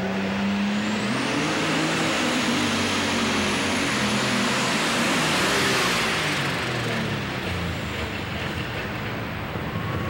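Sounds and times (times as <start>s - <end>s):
tractor engine at full throttle: 0.0s - 10.0s.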